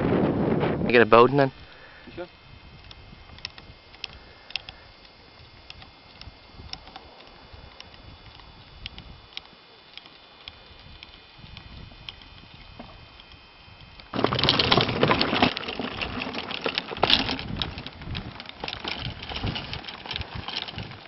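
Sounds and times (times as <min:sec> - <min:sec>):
trolley rolling over grass: 0:14.0 - 0:21.0
golf clubs rattling in bag: 0:14.1 - 0:21.0.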